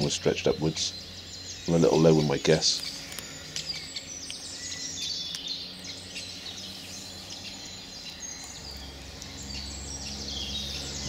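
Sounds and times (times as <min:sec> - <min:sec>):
low steady hum: 0:00.0 - 0:11.0
songbirds singing and chirping: 0:00.0 - 0:11.0.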